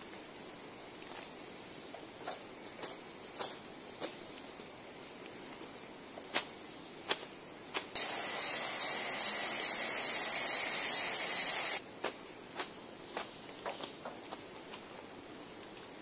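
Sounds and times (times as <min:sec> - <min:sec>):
loud high-pitched hiss: 0:08.0 - 0:11.8.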